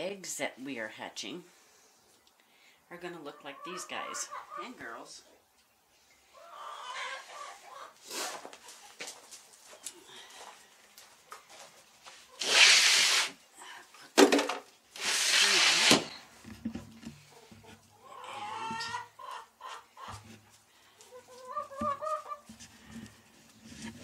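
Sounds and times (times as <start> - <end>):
chickens clucking: 3.0 - 10.0, 17.2 - 24.0
loud harsh rasping: 12.4 - 13.4, 15.0 - 16.2.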